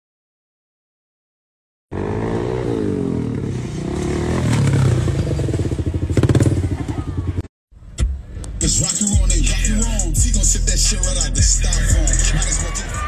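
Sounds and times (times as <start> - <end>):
motorcycle engine revving: 1.9 - 7.5.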